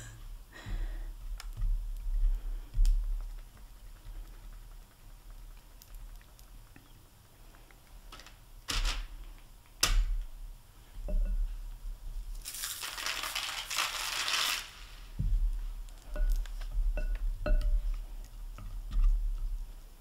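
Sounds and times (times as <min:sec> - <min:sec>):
dipping tool tapping glass bowl: 0:11.1 - 0:11.5, 0:16.0 - 0:18.0.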